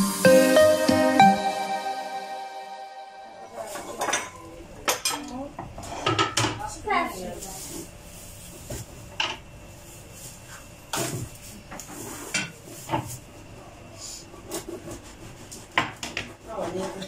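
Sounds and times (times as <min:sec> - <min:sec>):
dishes and cutlery clinking: 0:03.6 - 0:06.6.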